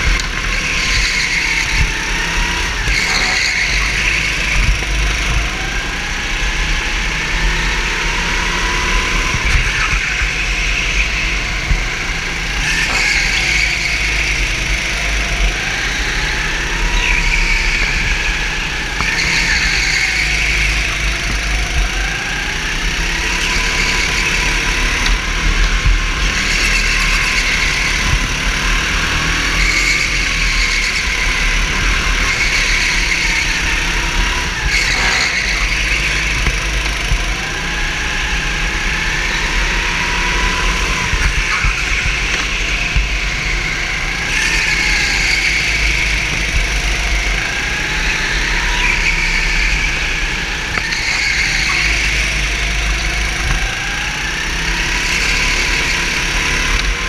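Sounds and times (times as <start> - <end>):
kart engine revving: 0.0 - 57.0.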